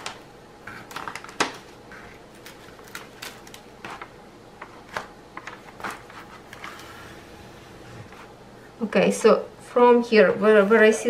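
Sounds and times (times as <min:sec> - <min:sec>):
paper sheet rustling and crinkling: 0:00.7 - 0:08.3.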